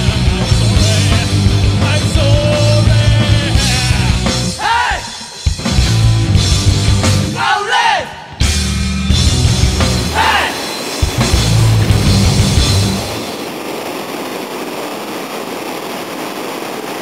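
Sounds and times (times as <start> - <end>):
rock music with singing: 0.0 - 13.3.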